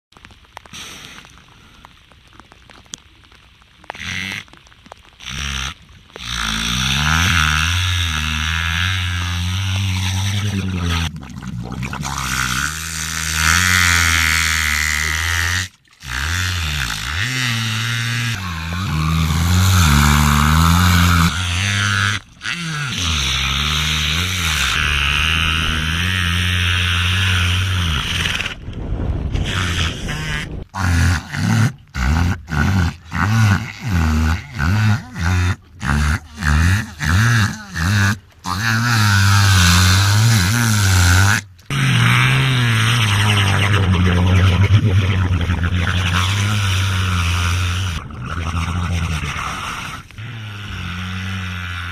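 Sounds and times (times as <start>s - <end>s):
orca droning calls: 29.3s - 51.9s.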